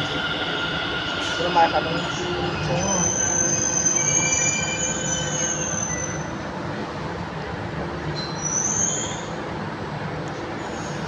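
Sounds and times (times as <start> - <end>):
train whining tones: 0.0 - 6.6
train rumble: 0.0 - 11.0.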